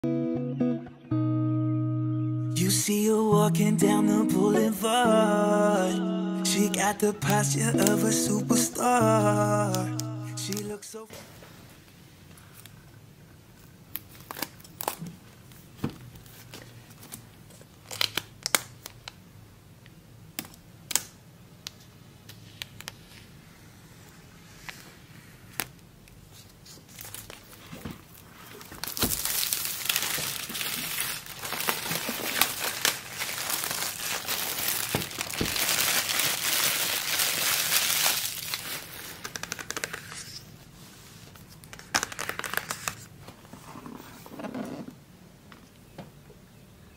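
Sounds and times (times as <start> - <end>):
shrink wrap crinkling: 6.5 - 11.0, 16.3 - 19.2, 25.5 - 40.6, 41.4 - 43.2
plastic wrap tearing: 17.8 - 19.1, 26.9 - 40.5.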